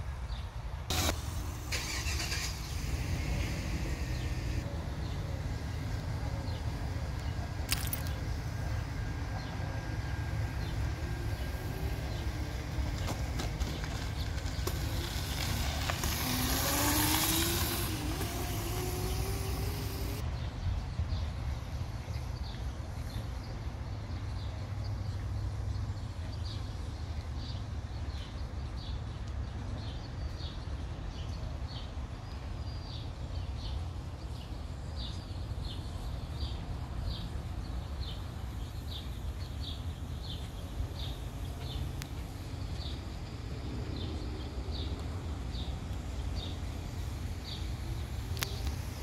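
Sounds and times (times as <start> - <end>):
electric dirt bike motor whining: 14.6 - 20.2.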